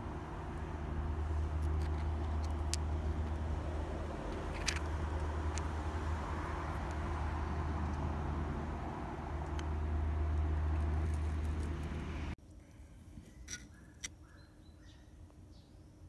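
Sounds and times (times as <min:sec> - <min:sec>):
low outdoor rumble: 0:00.0 - 0:12.4.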